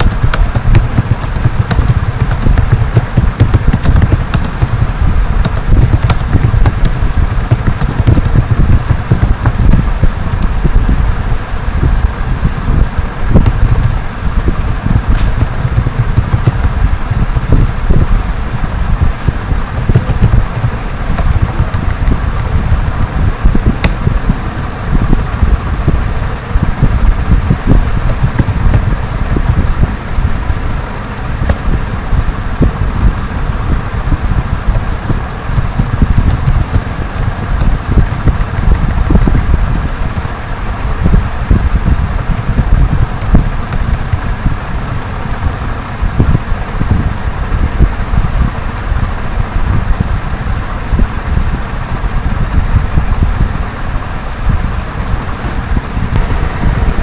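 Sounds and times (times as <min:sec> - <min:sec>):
keyboard keys clicking: 0:00.0 - 0:11.4, 0:13.4 - 0:14.0, 0:15.1 - 0:17.8, 0:19.7 - 0:22.6, 0:27.8 - 0:29.6, 0:31.5 - 0:31.7, 0:34.7 - 0:44.3
loud steady low rumble: 0:00.0 - 0:57.0.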